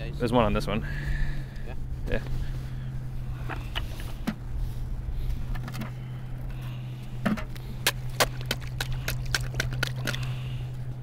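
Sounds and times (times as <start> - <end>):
low hum: 0.0 - 11.0
stick chopping at thin ice: 7.8 - 10.2.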